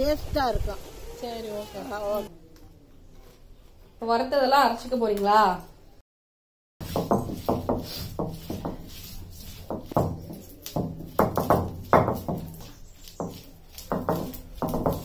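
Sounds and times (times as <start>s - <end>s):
stone roller knocking on slab: 6.8s - 15.0s.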